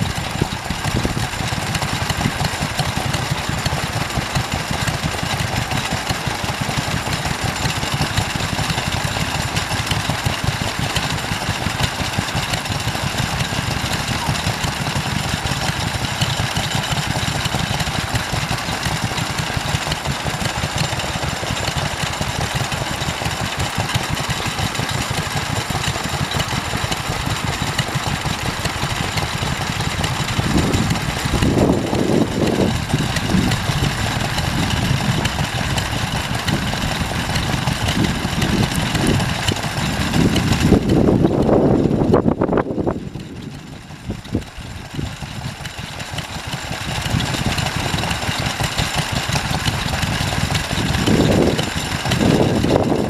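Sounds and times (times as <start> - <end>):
stationary engine running: 0.0 - 53.0
heavy low rumbles: 24.4 - 45.1, 49.8 - 53.0.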